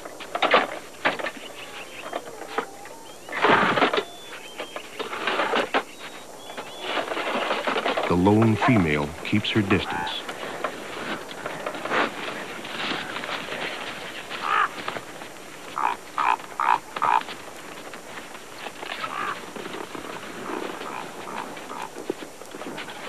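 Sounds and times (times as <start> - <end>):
crunching and shuffling in snow: 3.3 - 23.0
raven croaking: 7.0 - 23.0.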